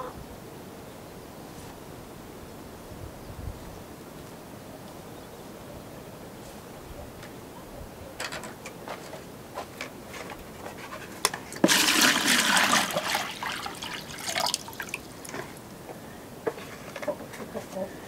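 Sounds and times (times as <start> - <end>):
bucket knocks and rustles: 8.4 - 14.6
water pouring into a pot: 11.6 - 15.4.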